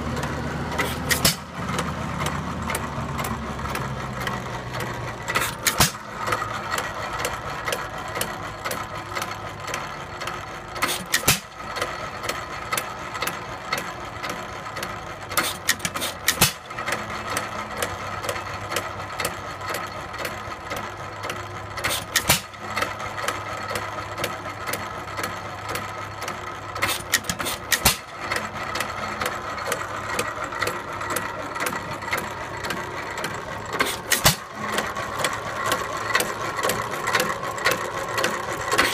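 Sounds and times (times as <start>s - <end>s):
engine exhaust bangs: 0.0s - 8.9s, 15.3s - 17.8s, 26.8s - 38.9s
clatter of valve gear and flywheels: 0.0s - 38.9s.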